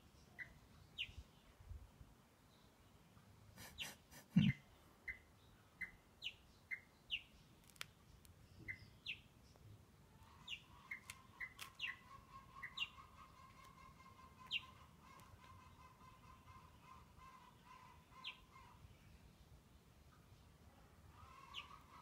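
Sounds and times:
small bird chirping: 0.0 - 1.6, 3.7 - 19.3.

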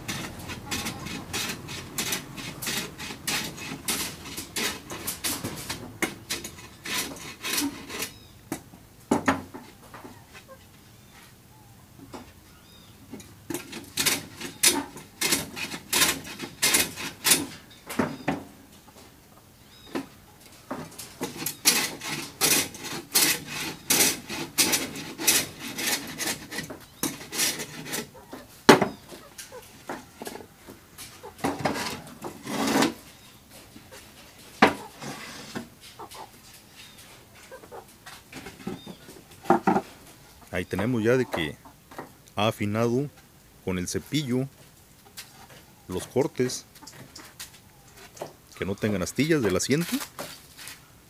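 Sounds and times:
hand plane rasping on wood: 0.0 - 8.2, 13.7 - 17.4, 21.2 - 28.2, 31.5 - 33.0
wood knocking: 38.4 - 39.9.

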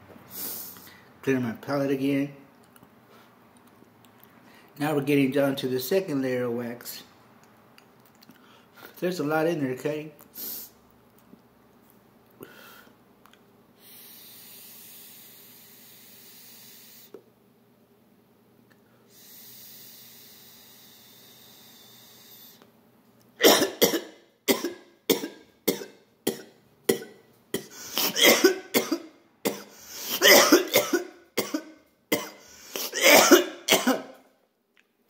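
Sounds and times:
man coughing: 23.4 - 34.2.

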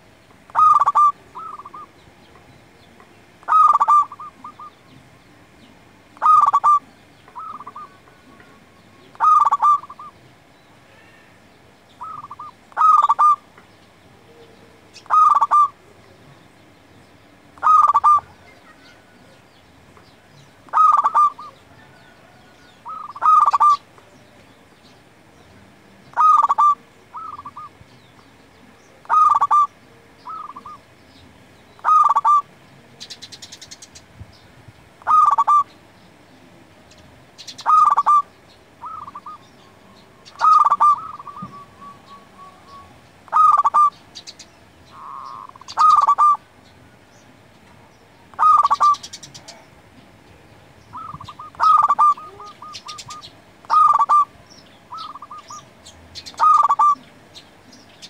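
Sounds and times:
dove cooing: 0.0 - 2.0, 3.4 - 5.0, 6.2 - 10.2, 12.0 - 13.5, 14.2 - 16.0, 17.6 - 19.4, 20.6 - 23.9, 26.0 - 27.8, 28.6 - 30.9, 31.8 - 33.7, 35.0 - 35.8, 37.4 - 44.0, 44.9 - 46.5, 48.3 - 49.7, 50.9 - 57.4.

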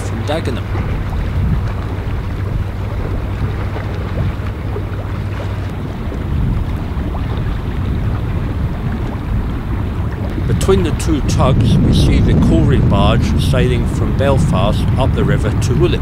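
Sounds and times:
steady low drone: 0.0 - 16.0
wind rumbling on microphone: 0.0 - 16.0.

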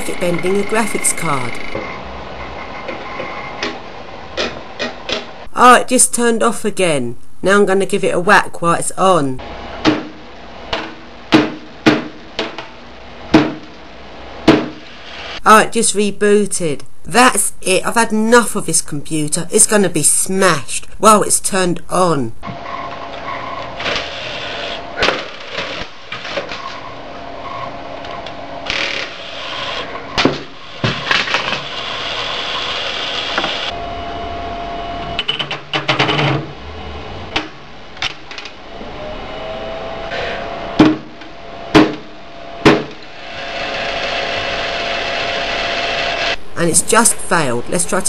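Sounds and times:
computer humming: 0.0 - 6.3, 9.0 - 15.5, 32.0 - 35.4, 36.5 - 48.0.

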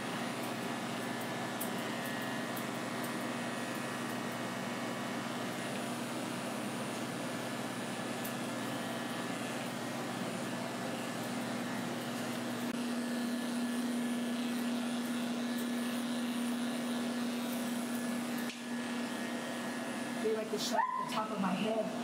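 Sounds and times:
electric clipper motor hum: 0.0 - 22.0.

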